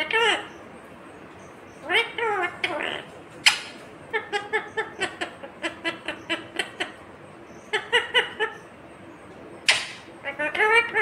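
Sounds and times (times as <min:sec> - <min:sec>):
parrot chattering: 0:00.0 - 0:00.6, 0:01.8 - 0:08.8, 0:09.6 - 0:11.0
parrot squawk: 0:01.8 - 0:07.0, 0:07.7 - 0:08.6, 0:09.6 - 0:11.0.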